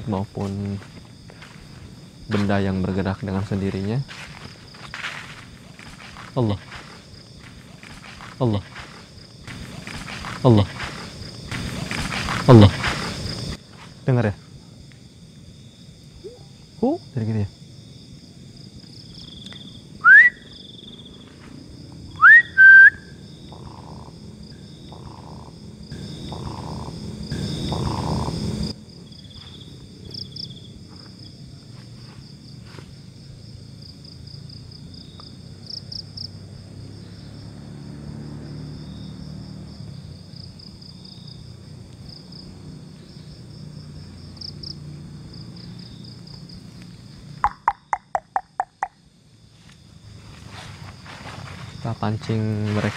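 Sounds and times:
crickets and night insects chorus: 0.0s - 52.9s
rising human whistles: 20.0s - 20.6s, 22.2s - 23.2s.

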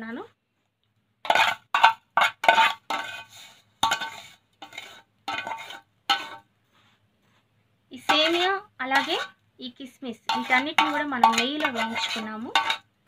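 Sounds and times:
steel spoon clinking on dish: 10.3s - 12.9s.

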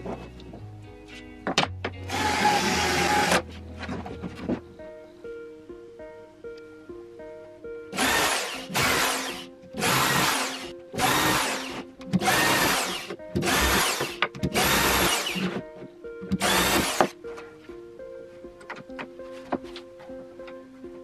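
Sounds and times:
power drill whining: 2.1s - 3.4s, 8.0s - 15.5s, 16.4s - 17.1s.

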